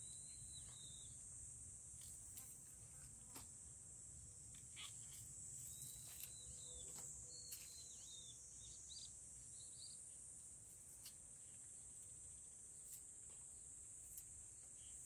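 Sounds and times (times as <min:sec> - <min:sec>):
bird chirps: 0:00.0 - 0:01.2, 0:04.7 - 0:10.1
high-pitched insect chorus: 0:00.0 - 0:15.0.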